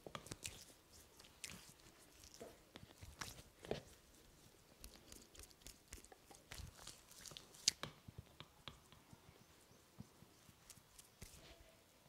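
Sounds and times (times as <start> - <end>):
fingers rubbing skin and hair: 0.2 - 7.8, 10.5 - 11.7.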